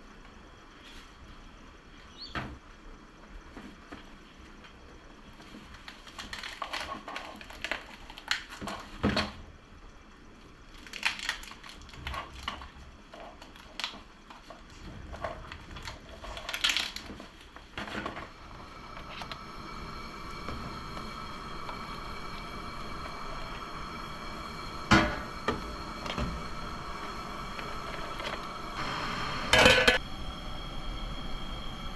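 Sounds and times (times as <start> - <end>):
faint steady hum: 0.0 - 31.9
plastic bag crinkling: 15.4 - 17.6.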